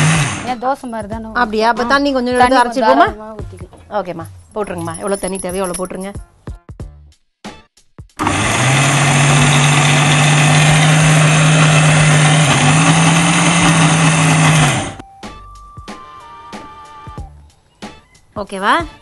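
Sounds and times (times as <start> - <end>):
mixer grinder motor whirring: 0.0 - 0.5, 8.2 - 15.0.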